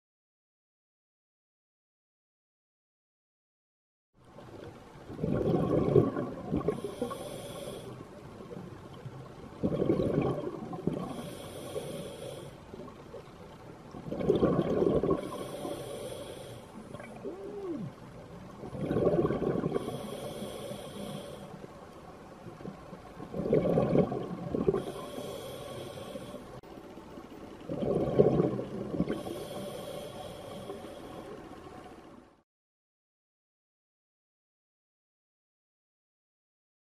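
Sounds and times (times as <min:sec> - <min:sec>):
exhaled bubbles rumbling underwater: 0:04.2 - 0:32.3.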